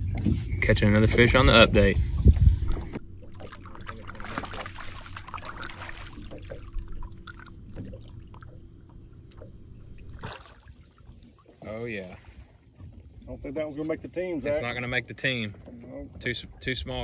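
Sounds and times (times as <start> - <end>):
wind rumble on microphone: 0.0 - 3.2
small waves lapping against boat hull: 0.0 - 17.0
faint steady hum: 1.6 - 15.3.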